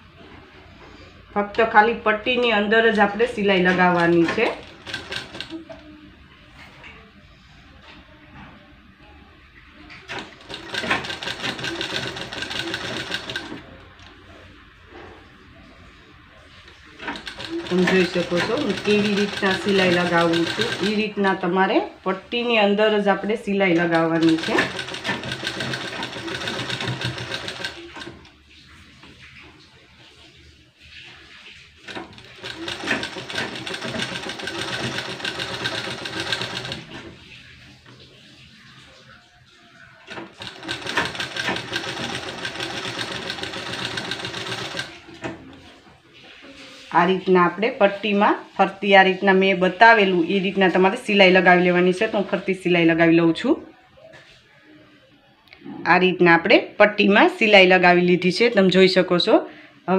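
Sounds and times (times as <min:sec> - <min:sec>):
sewing machine stitching: 0:02.9 - 0:05.8, 0:10.1 - 0:13.8, 0:16.7 - 0:21.1, 0:23.9 - 0:29.2, 0:31.8 - 0:37.3, 0:40.1 - 0:45.5.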